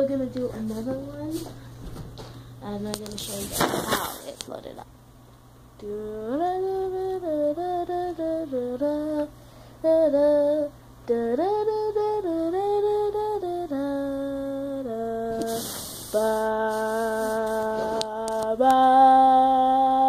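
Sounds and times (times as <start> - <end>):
person humming: 9.9 - 20.0.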